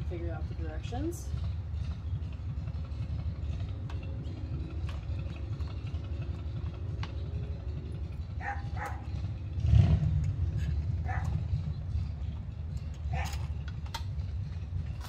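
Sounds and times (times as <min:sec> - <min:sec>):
steady low rumble: 0:00.0 - 0:15.0
clicks and knocks of parts handled: 0:12.3 - 0:15.0.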